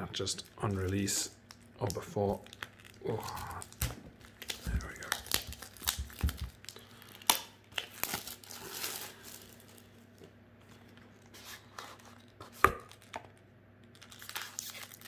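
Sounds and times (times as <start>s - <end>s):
foil packs rustling: 1.9s - 13.2s, 13.9s - 15.0s.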